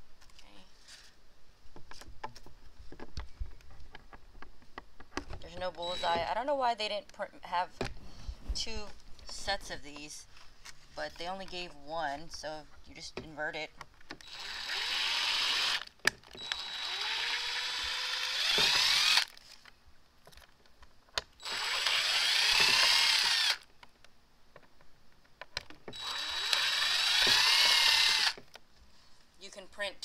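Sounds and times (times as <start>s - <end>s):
impact driver drilling plastic: 5.5s - 6.3s, 14.2s - 19.4s, 21.4s - 23.7s, 25.9s - 28.4s.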